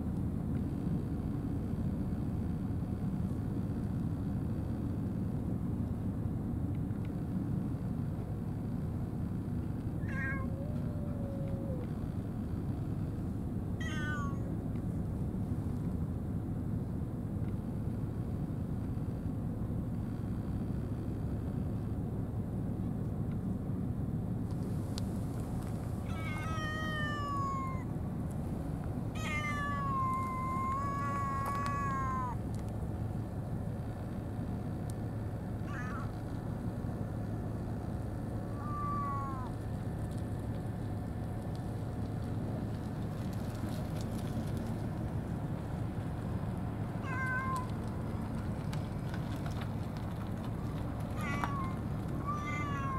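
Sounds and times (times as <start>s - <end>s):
low background rumble: 0.0s - 52.9s
cat meowing: 10.0s - 11.9s, 13.8s - 14.5s, 26.0s - 27.9s, 29.1s - 32.4s, 35.6s - 36.2s, 38.4s - 39.6s, 47.0s - 47.8s, 51.2s - 52.9s.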